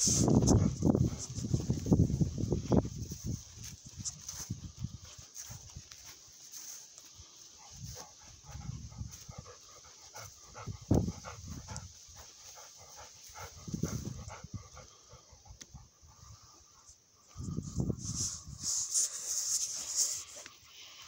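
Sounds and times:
dog panting: 0.3s - 1.8s, 7.4s - 17.0s.

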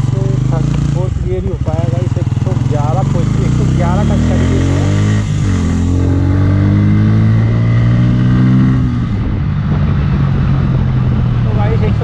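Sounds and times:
motorcycle engine: 0.0s - 12.0s
wind noise: 3.3s - 12.0s.

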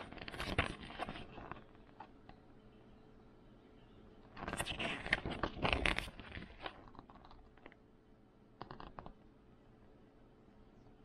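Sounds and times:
plastic packaging crinkling: 0.0s - 1.8s, 4.4s - 7.3s.

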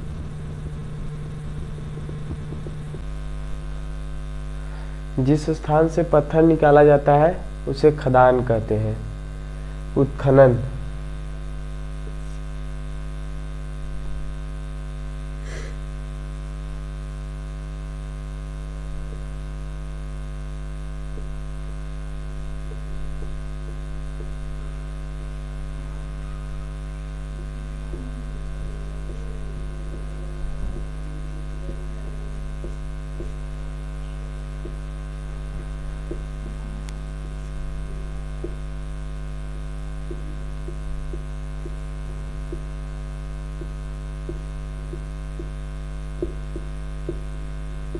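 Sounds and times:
electrical mains hum: 0.0s - 47.9s.

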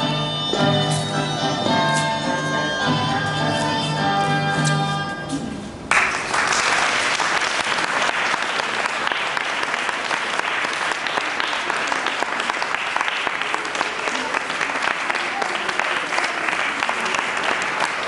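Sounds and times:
audience applause: 5.9s - 18.0s.

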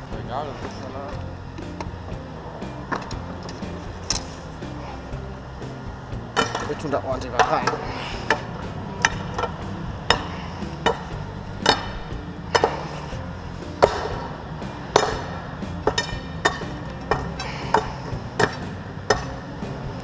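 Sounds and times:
metal bar knocking with ring: 6.4s - 13.0s, 14.9s - 19.4s.

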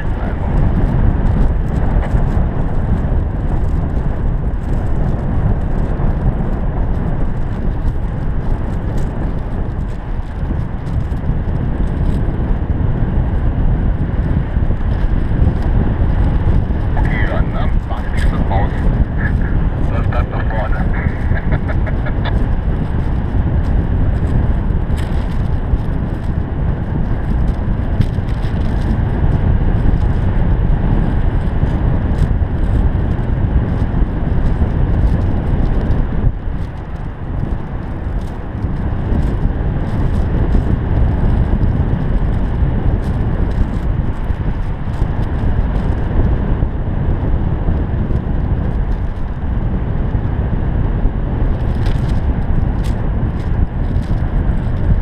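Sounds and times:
wind buffeting microphone: 0.0s - 55.0s
short crackles: 14.1s - 26.4s.

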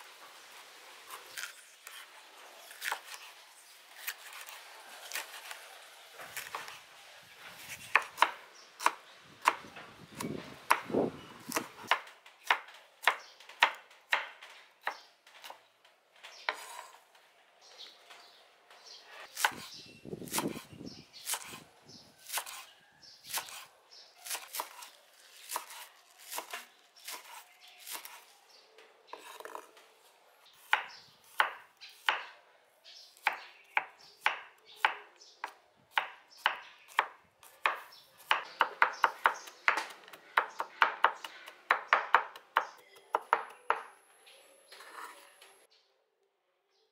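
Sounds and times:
knife chopping on wooden board: 7.6s - 15.6s, 16.5s - 16.9s, 19.3s - 19.7s, 20.3s - 21.6s, 22.2s - 22.7s, 23.3s - 28.2s, 29.1s - 29.7s, 30.6s - 32.3s, 33.2s - 43.9s.

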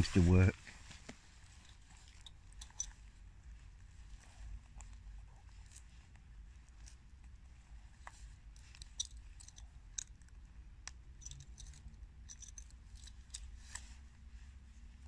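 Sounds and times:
low steady rumble: 1.2s - 15.0s
small clicks and ticks: 1.6s - 3.0s, 8.0s - 13.9s.

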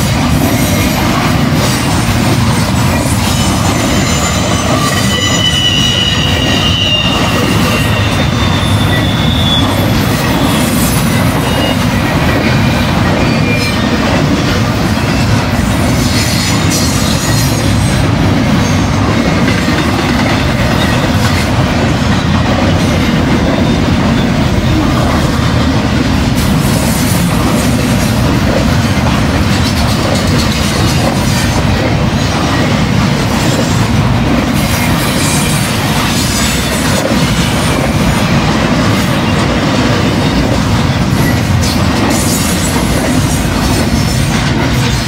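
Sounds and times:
train wheels rumbling on rails: 0.0s - 45.0s
high-pitched wheel squeal: 3.4s - 11.9s.

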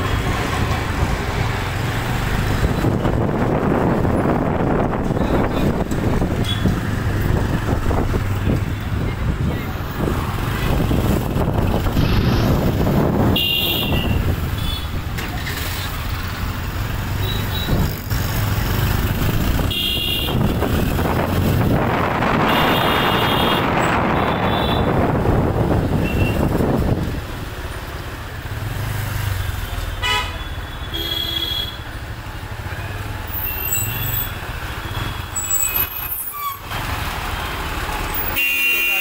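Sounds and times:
vehicle engines running: 0.0s - 30.7s, 31.9s - 38.4s
loud rushing noise: 9.3s - 14.6s.

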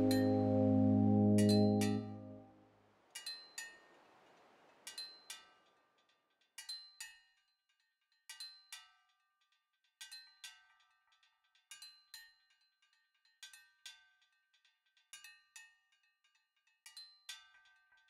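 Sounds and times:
high chime-like notes: 0.0s - 2.4s.

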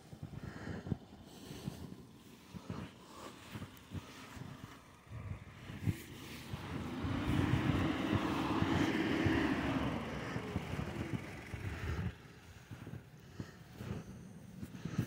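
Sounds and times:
footsteps crunching through snow: 0.1s - 15.0s
vehicle passing hum: 3.1s - 14.6s.

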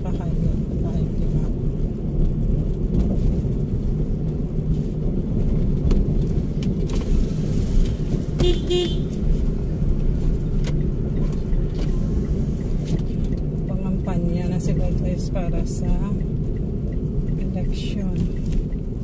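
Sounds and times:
car engine and road noise: 0.0s - 19.0s
car horn toot: 8.4s - 9.2s.

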